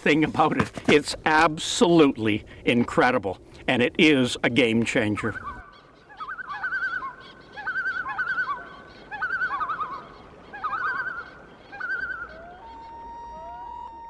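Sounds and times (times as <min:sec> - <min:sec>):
bird warbling tremolo call: 0:05.2 - 0:13.8.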